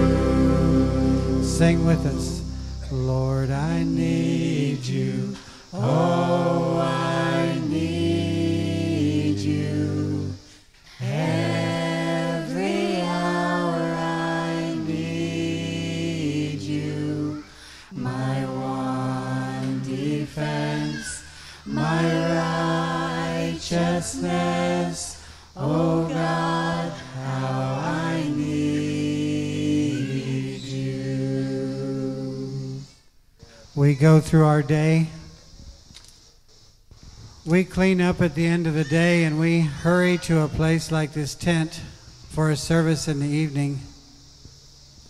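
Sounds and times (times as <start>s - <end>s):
group singing a cappella: 0.0s - 33.1s.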